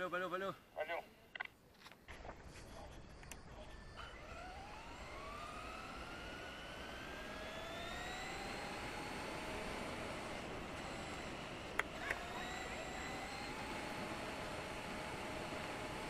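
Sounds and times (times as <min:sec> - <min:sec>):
electric motor whining: 0:03.2 - 0:16.0.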